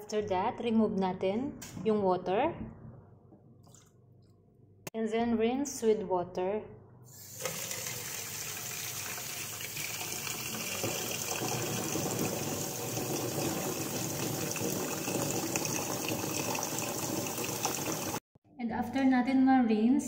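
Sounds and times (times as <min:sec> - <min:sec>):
tap water splashing into metal pot: 0:07.4 - 0:18.2.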